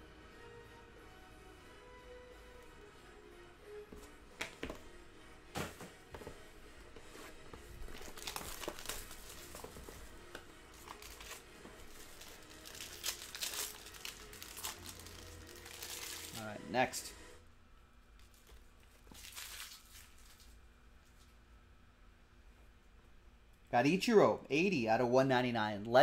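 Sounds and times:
cellophane crinkling: 7.8s - 10.1s, 10.7s - 16.6s, 18.2s - 21.3s.

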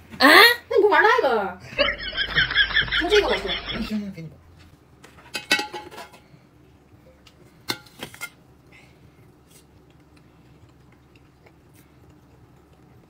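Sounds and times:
tableware knocks and clinks: 5.3s - 6.3s.

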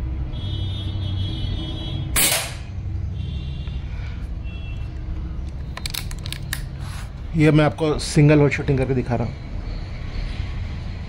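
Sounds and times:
air rifle shot: 2.2s - 2.7s.

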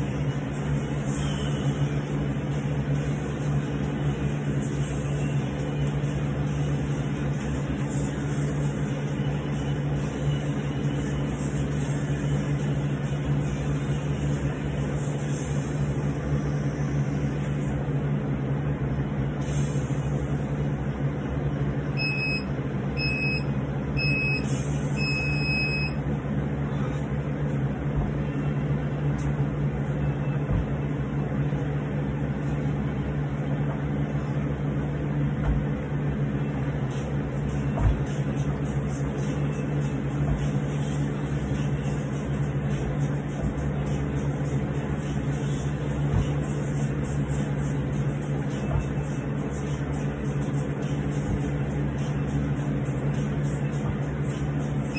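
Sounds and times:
steady machine hum: 0.0s - 54.9s
electronic timer beeping: 22.0s - 26.0s.

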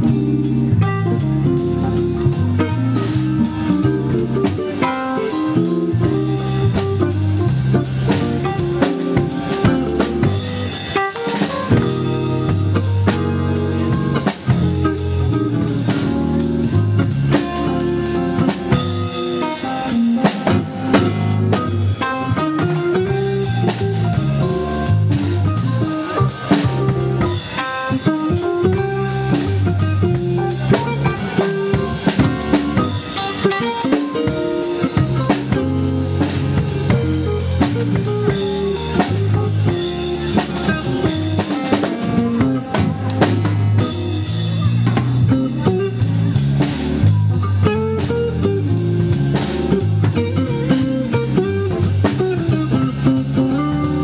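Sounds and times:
drum kit beat: 0.0s - 54.0s
electric guitar: 0.0s - 54.0s
electronic keyboard: 0.0s - 54.0s.

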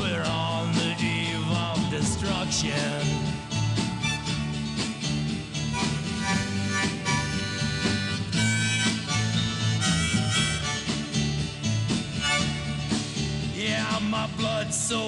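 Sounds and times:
steady beat: 0.0s - 14.8s
strummed guitar: 0.0s - 15.0s
harmonica solo: 2.5s - 13.2s.

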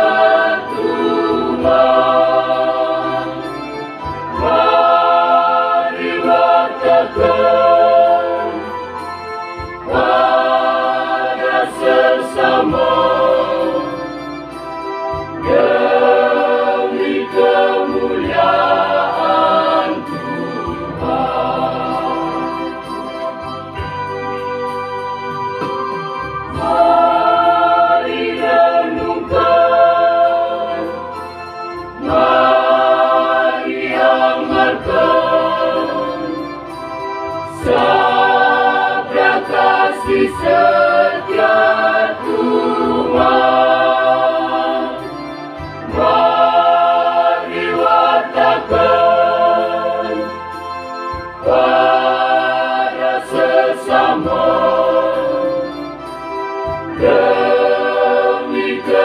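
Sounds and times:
choir singing a hymn: 0.0s - 24.1s, 24.8s - 59.0s
electronic keyboard: 0.0s - 59.0s.

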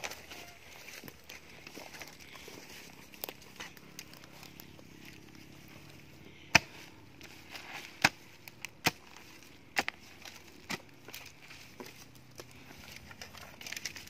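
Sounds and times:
hoe chopping into dry soil: 6.3s - 14.0s.

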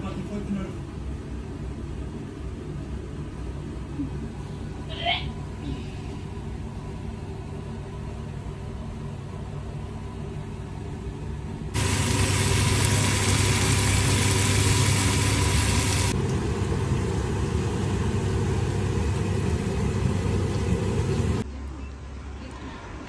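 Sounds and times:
machine hum: 11.5s - 21.6s
loud even hiss: 11.8s - 16.2s.

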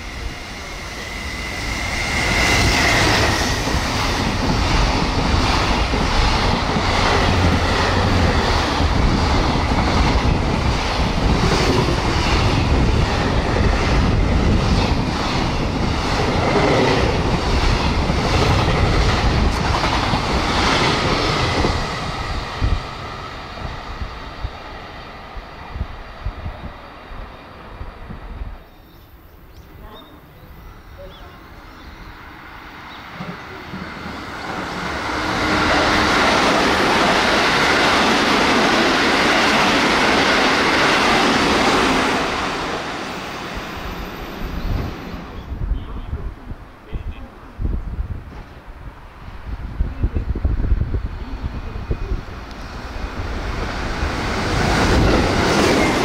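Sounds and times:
train wheels clattering on track: 0.8s - 24.2s, 32.9s - 45.1s, 52.0s - 56.0s.

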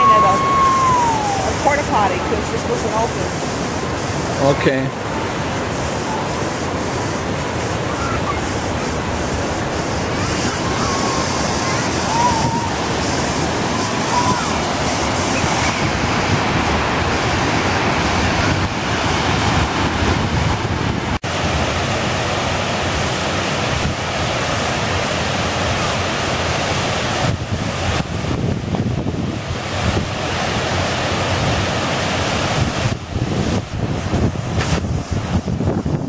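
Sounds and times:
wind buffeting microphone: 0.0s - 24.2s, 27.1s - 36.0s.

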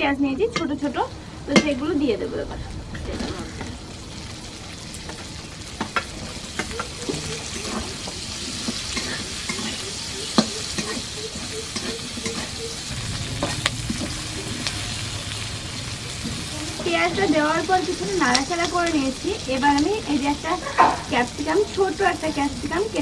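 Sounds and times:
onions sizzling in hot oil: 0.2s - 23.0s
metal spatula scraping pan: 6.6s - 18.9s.

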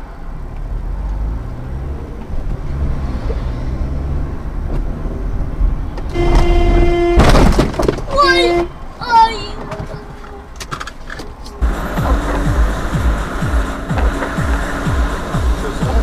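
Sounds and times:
car engine and road rumble: 0.0s - 16.0s
car horn held tone: 6.1s - 7.5s, 8.1s - 8.8s.

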